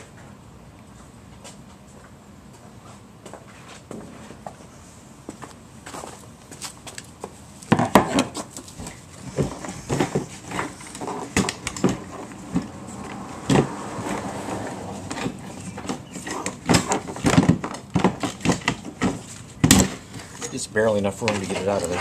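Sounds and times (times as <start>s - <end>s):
plastic knocking and scraping: 7.7s - 14.4s, 15.0s - 20.0s.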